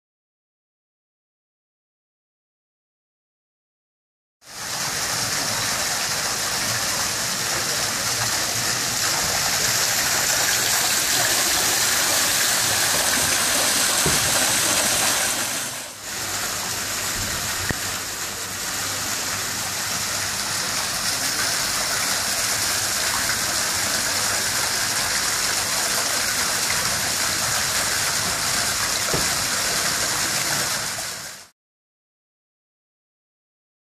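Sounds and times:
waterfall rushing into pool: 4.5s - 31.5s.

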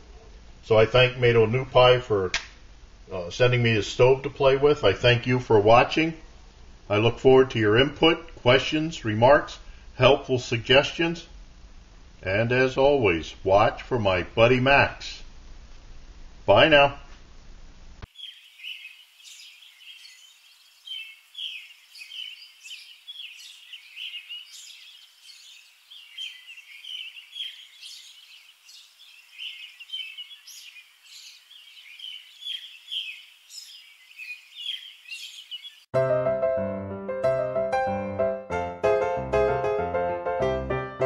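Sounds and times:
small birds chirping: 18.0s - 35.9s.

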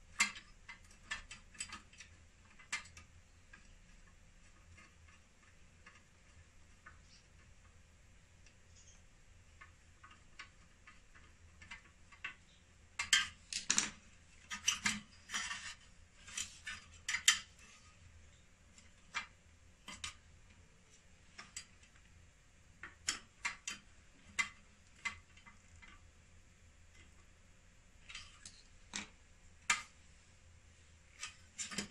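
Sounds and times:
metal and plastic parts clicking: 0.1s - 7.8s, 8.4s - 17.9s, 18.7s - 20.6s, 22.8s - 26.1s, 31.1s - 31.9s.

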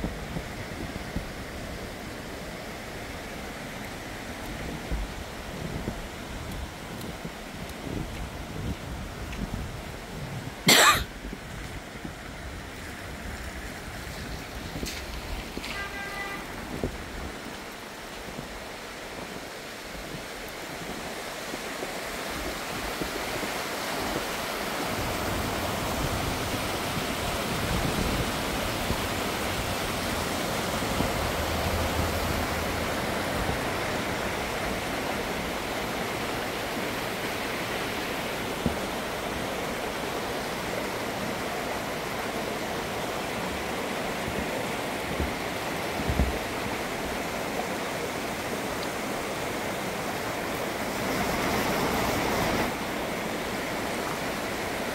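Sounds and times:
stream rushing over rocks: 0.0s - 54.9s.

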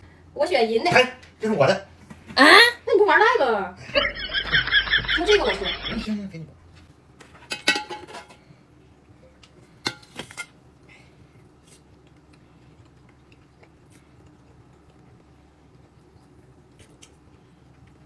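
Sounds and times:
tableware clinking: 7.4s - 8.4s.

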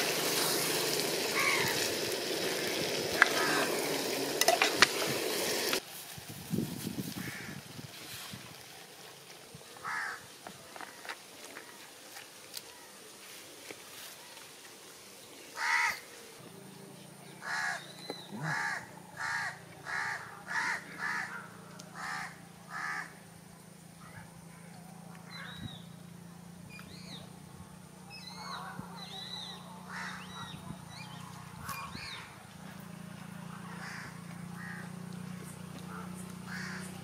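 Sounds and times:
bird calling: 1.3s - 2.1s, 3.2s - 4.1s, 15.5s - 16.1s, 17.2s - 23.2s, 28.1s - 32.4s, 33.6s - 37.0s
small birds chirping: 17.0s - 18.6s, 24.4s - 27.4s.

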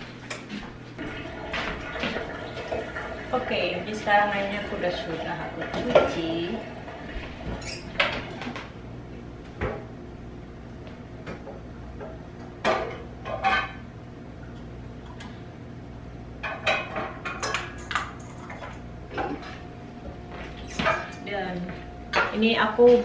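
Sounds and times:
metal pots and pans clanking: 12.6s - 13.8s, 16.4s - 19.6s.

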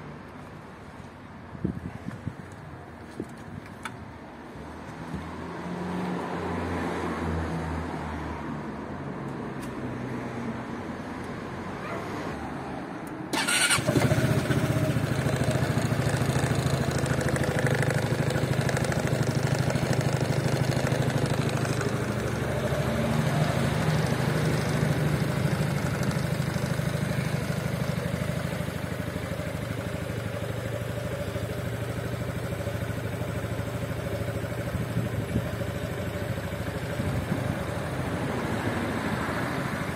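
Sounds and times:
scooter engine starting and idling: 13.3s - 38.9s.

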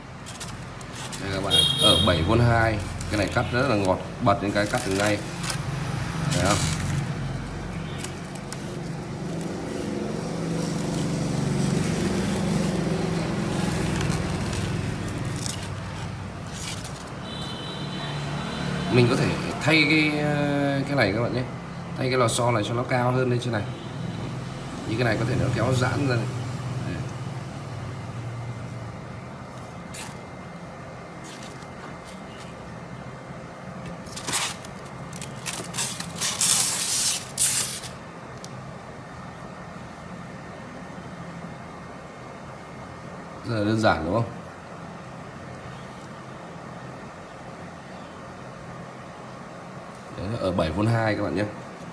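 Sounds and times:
styrofoam scraping and crackling: 0.0s - 17.3s, 29.6s - 30.3s, 33.9s - 38.0s.

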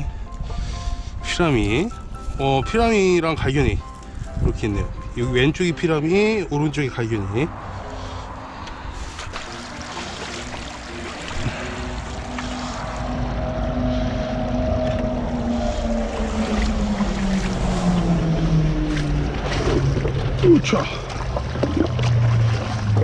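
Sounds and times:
stream water rushing and splashing: 7.7s - 23.0s.

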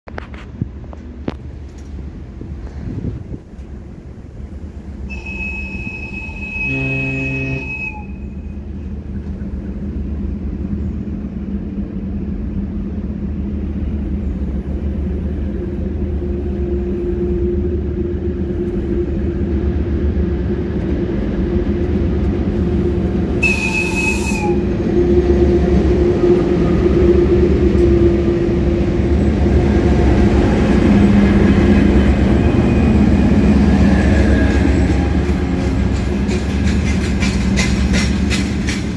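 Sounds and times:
train wheels and machinery rumble: 0.0s - 38.9s
locomotive horn: 5.1s - 8.7s, 23.4s - 28.5s.

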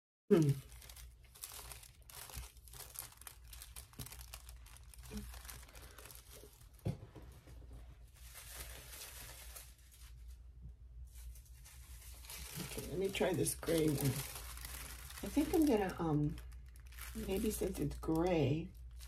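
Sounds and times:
paper crinkling and rustling: 0.6s - 10.4s, 11.0s - 19.0s.

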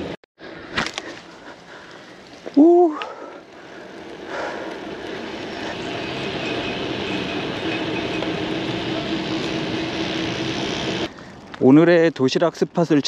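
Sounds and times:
rushing vehicle noise: 3.8s - 11.1s.

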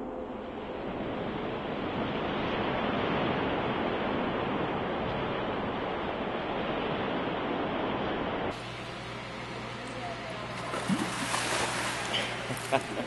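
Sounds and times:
swimmers splashing: 8.6s - 13.0s.

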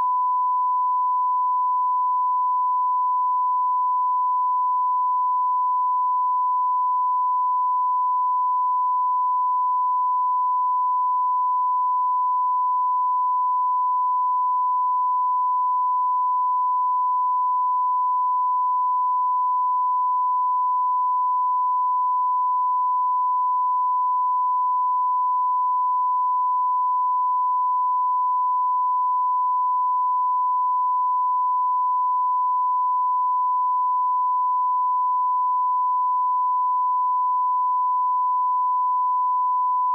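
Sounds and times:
steady sine tone: 0.0s - 39.9s.

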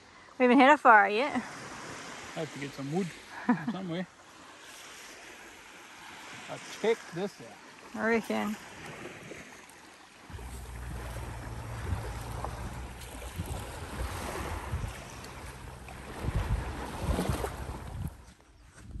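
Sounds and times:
low rumble: 10.3s - 18.0s
wind buffeting microphone: 10.3s - 19.0s.

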